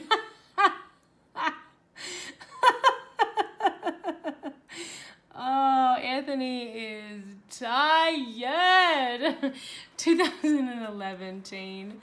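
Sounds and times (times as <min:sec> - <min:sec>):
woman laughing: 0:00.0 - 0:04.7.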